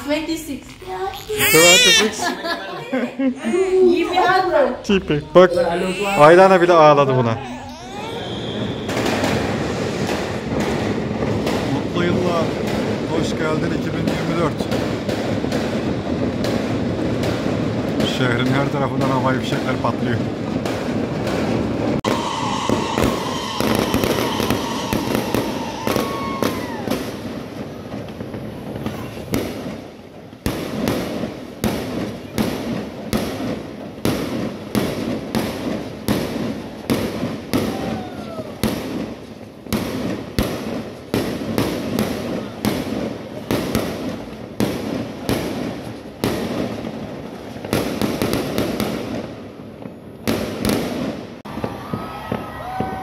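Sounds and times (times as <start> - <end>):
fireworks bangs and crackle: 6.2 - 53.0
firework whistles: 7.8 - 12.2, 22.0 - 27.9, 36.4 - 39.1.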